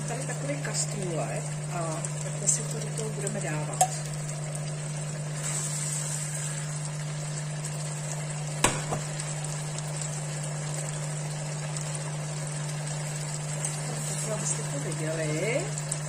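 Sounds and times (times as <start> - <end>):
meat sizzling in hot oil: 0.0 - 16.0
wire strainer knocking: 8.6 - 9.1.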